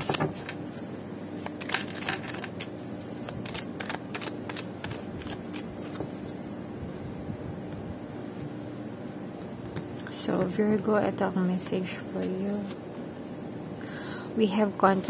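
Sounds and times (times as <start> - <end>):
cards being shuffled: 0.0 - 7.0, 11.7 - 12.8.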